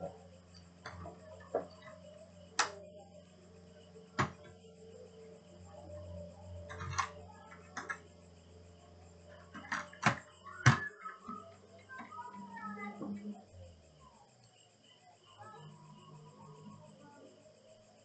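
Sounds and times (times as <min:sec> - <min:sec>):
steady low hum: 0:00.0 - 0:18.0
laptop parts clicking and knocking: 0:04.1 - 0:04.5, 0:06.7 - 0:08.0, 0:09.5 - 0:12.2.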